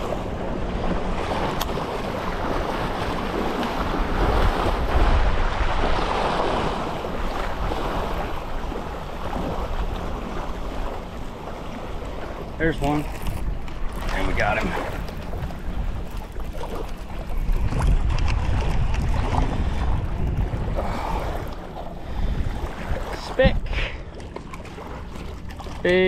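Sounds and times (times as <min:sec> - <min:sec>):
wind buffeting microphone: 0:00.0 - 0:25.8
waves washing at a jetty: 0:00.0 - 0:26.0.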